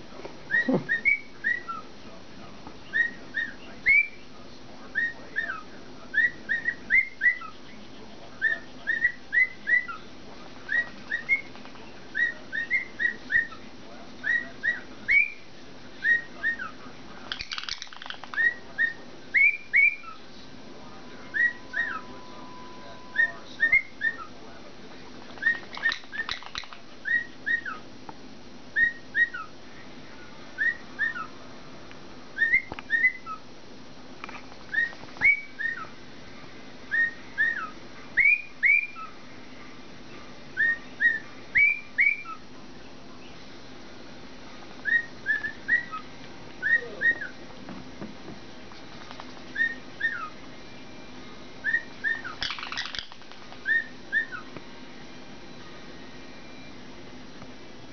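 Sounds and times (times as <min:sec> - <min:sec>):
cockatiel whistling: 0:00.5 - 0:01.9, 0:02.9 - 0:04.2, 0:04.9 - 0:07.6, 0:08.4 - 0:10.1, 0:10.7 - 0:13.6, 0:14.2 - 0:15.4, 0:16.0 - 0:16.8, 0:17.4 - 0:20.2, 0:21.2 - 0:24.3, 0:25.4 - 0:27.8, 0:28.8 - 0:29.5, 0:30.6 - 0:31.3, 0:32.4 - 0:33.4, 0:34.7 - 0:35.9, 0:36.9 - 0:39.2, 0:40.6 - 0:42.4, 0:44.8 - 0:47.4, 0:49.5 - 0:50.4, 0:51.6 - 0:54.5.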